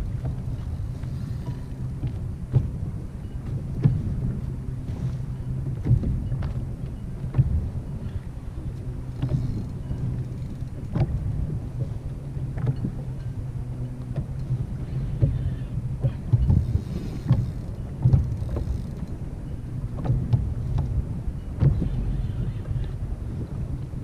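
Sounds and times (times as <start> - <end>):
waves slapping kayak hull: 0.0 - 24.0
wind buffeting microphone: 0.0 - 24.0.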